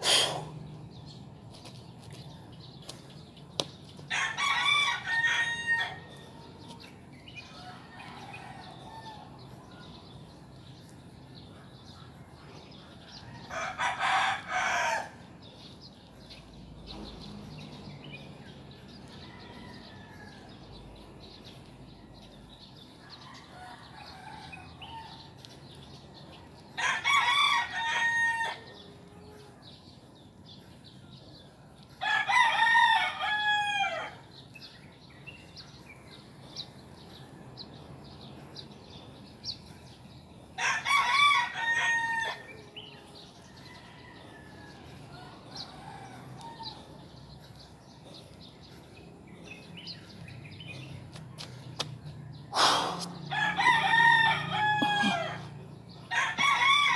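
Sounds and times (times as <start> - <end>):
rooster crowing: 4.1 - 6.2, 26.8 - 28.8, 40.6 - 46.8, 53.3 - 55.5, 56.1 - 56.9.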